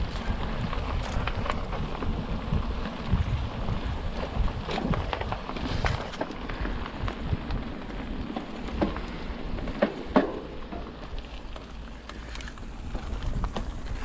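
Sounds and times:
tyres crackling on dirt: 0.0s - 14.0s
bike rattling knocks: 8.3s - 11.0s.

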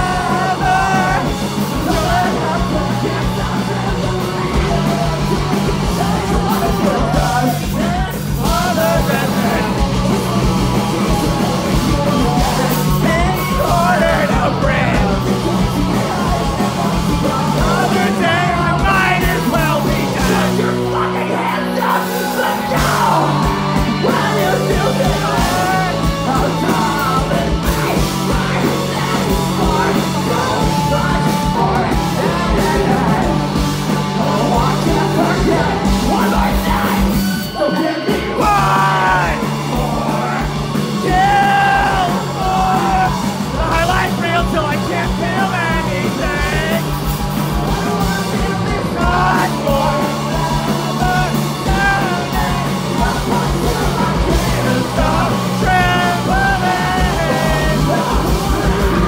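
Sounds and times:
bass guitar: 0.0s - 59.0s
drums: 0.0s - 59.0s
electric guitars: 0.0s - 59.0s
person yelling vocals: 40.1s - 46.8s.

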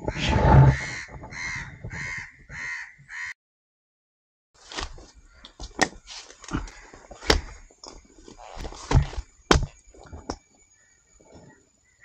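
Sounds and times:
crow cawing: 0.7s - 3.4s.

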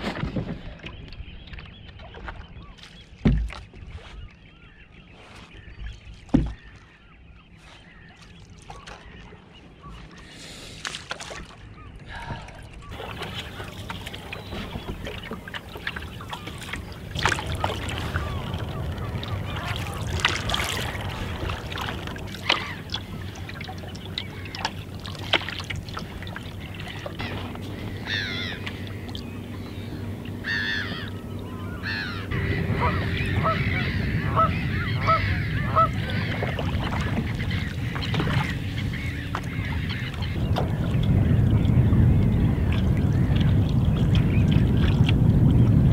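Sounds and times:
paddle strokes splashing: 0.0s - 45.9s
water birds calling: 0.0s - 45.9s
water lapping around canoe: 0.0s - 45.9s.

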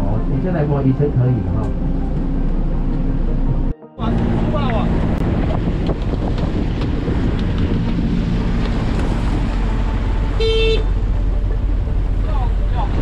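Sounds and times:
boat engine idling: 0.2s - 13.0s
wind buffeting microphone: 4.0s - 10.4s.

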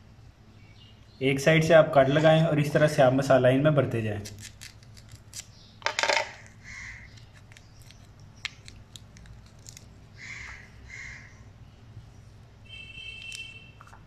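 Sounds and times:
fingers pressing spice mixture: 7.1s - 9.9s.

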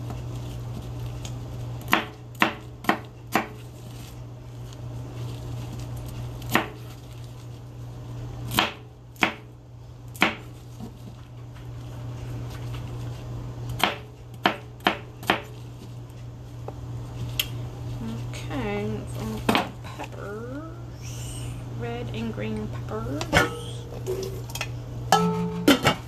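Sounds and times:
knife chopping on cutting board: 1.8s - 3.6s, 6.5s - 6.9s, 8.5s - 9.5s, 10.2s - 10.9s, 13.8s - 15.6s.

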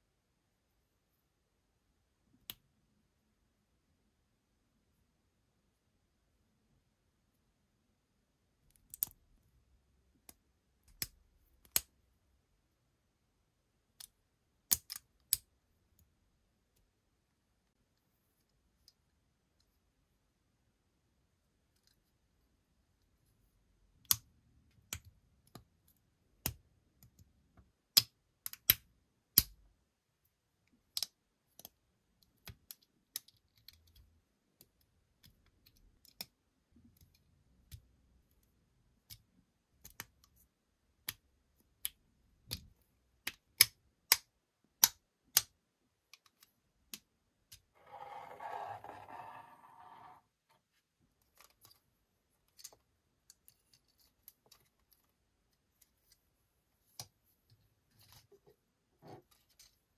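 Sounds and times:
plastic toy wheels rolling: 47.8s - 50.2s.

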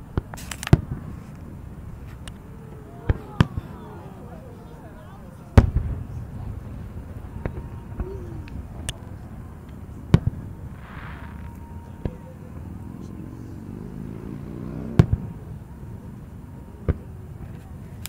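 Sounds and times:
firework shells booming: 0.0s - 12.6s, 14.9s - 15.6s
small firework pops: 0.1s - 2.4s.

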